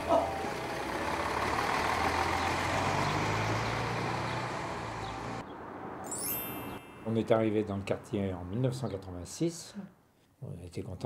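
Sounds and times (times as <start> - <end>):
bus engine hum: 0.0 - 5.4
road noise: 0.0 - 9.8.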